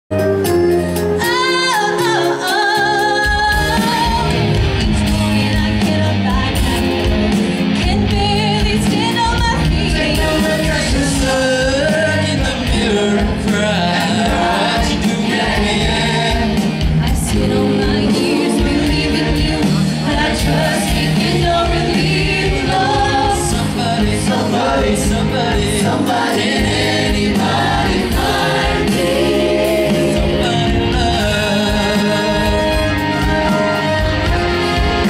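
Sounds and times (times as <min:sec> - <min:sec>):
band playing a beat: 0:00.1 - 0:35.0
woman singing with vibrato: 0:01.2 - 0:11.8, 0:14.1 - 0:24.8
choir singing: 0:09.7 - 0:35.0.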